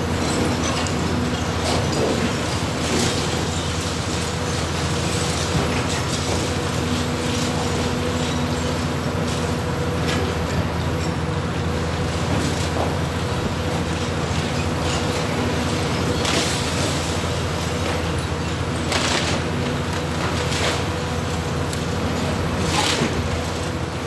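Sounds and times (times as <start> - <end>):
excavator engine and hydraulics: 0.0 - 24.0
breaking concrete and falling debris: 14.4 - 23.8.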